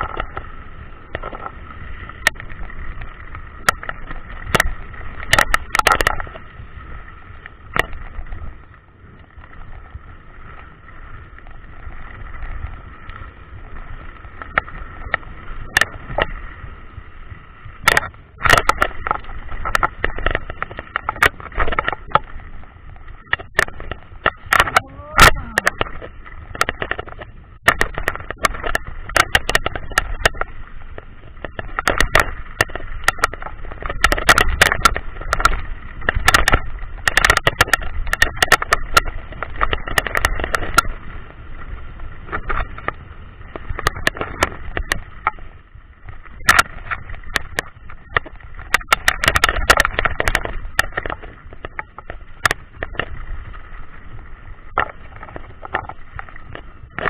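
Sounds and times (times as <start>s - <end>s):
bike knocking and rattling: 0.0s - 57.0s
rushing wind: 0.0s - 57.0s.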